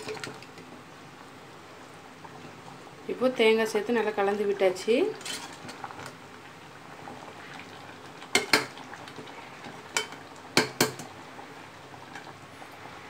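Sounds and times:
faint simmering sizzle: 0.0 - 13.0.

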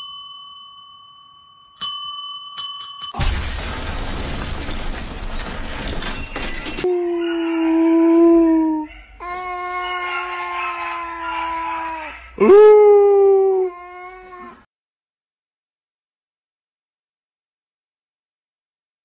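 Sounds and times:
dog howling: 6.8 - 14.6.

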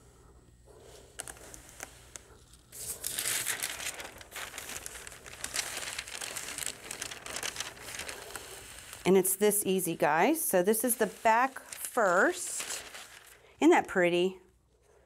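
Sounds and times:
parchment paper crinkling: 0.8 - 14.0.

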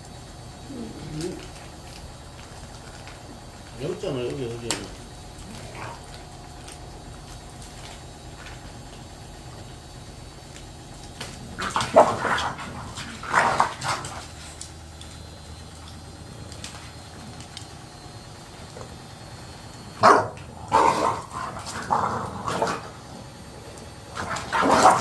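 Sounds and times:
dog barking: 11.6 - 14.2, 20.0 - 22.8, 24.2 - 25.0.

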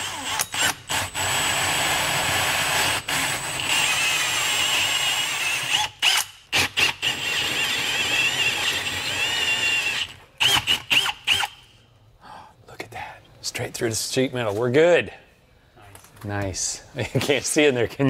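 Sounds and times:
drill with hole saw cutting wood: 0.0 - 11.6.

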